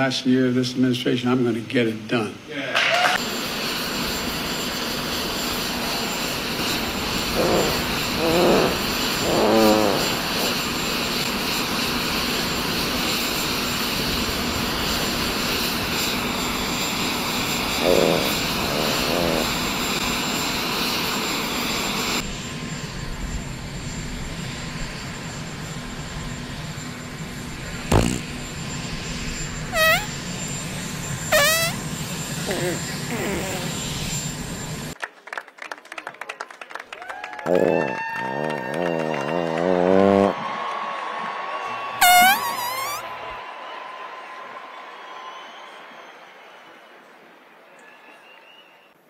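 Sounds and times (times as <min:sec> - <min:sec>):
aircraft engine roar: 0:03.1 - 0:35.0, 0:37.2 - 0:40.5
fart sound effects: 0:07.2 - 0:10.7, 0:17.8 - 0:19.6, 0:27.9 - 0:28.3, 0:29.8 - 0:30.1, 0:31.3 - 0:31.8, 0:32.5 - 0:33.8, 0:37.5 - 0:40.4, 0:42.0 - 0:43.1.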